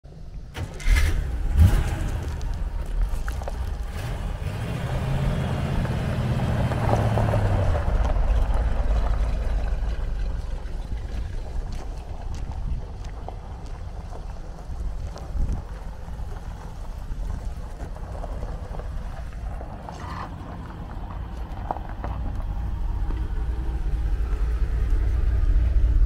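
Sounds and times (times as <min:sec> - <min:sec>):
car engine starting and revving: 0:00.5 - 0:11.1
tyres on gravel: 0:00.5 - 0:26.0.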